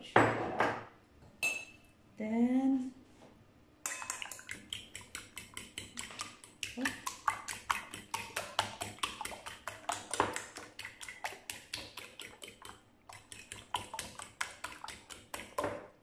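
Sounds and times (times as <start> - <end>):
fork beating egg in bowl: 3.8 - 16.0.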